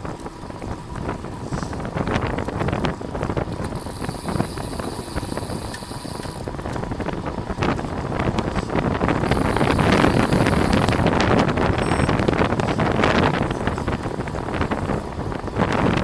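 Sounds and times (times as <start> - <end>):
road noise: 0.0 - 16.0
wind rushing over microphone: 0.0 - 16.0
bicycle clicks and rattles: 2.0 - 12.8.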